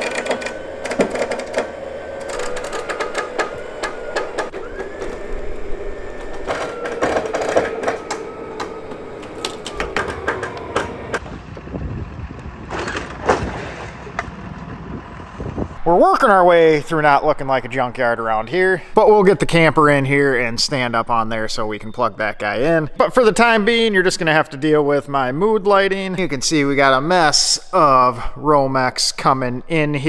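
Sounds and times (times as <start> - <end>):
winch motor whine: 0.0 - 13.3
metal clanks and knocks: 6.2 - 11.2.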